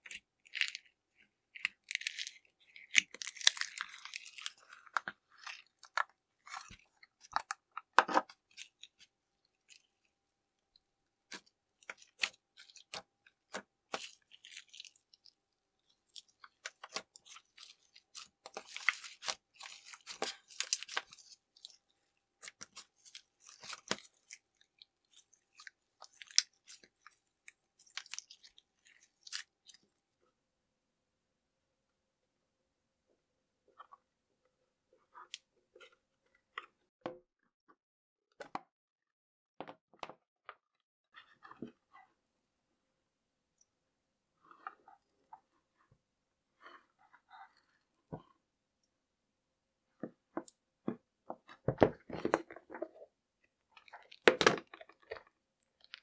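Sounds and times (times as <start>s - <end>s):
hands squishing slime: 0.0s - 10.1s, 11.3s - 29.8s.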